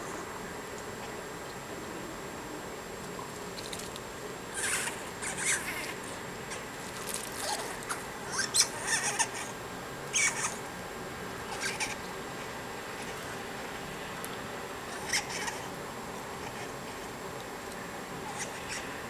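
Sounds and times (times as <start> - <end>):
squirrels chattering: 4.5 - 6.6, 7.4 - 9.5, 10.1 - 10.6, 11.5 - 12.0, 14.9 - 15.6, 18.3 - 18.9.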